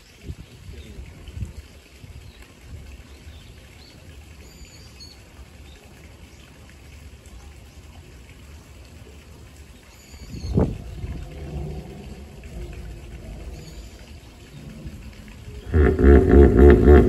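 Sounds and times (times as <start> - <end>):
low background rumble: 10.3 - 17.0.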